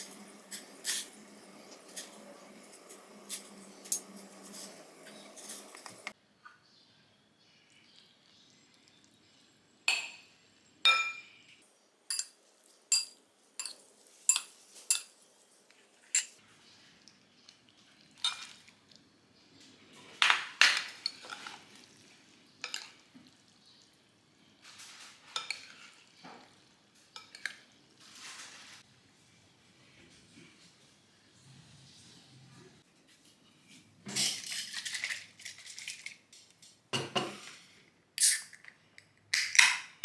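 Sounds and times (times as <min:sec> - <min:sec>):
cutlery clinking on ceramic plates: 0:12.1 - 0:15.1
scraping and mixing food: 0:12.1 - 0:28.9.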